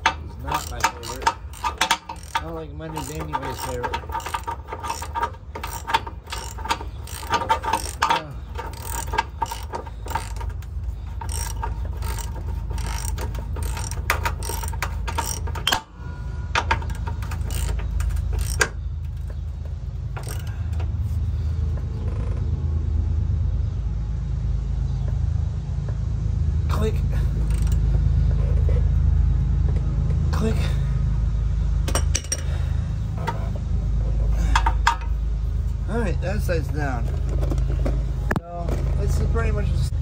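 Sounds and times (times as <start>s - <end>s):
ratchet wrench clicking: 0.0s - 15.9s, 16.6s - 19.4s, 20.2s - 20.7s, 27.4s - 27.9s
steady low hum: 0.0s - 40.0s.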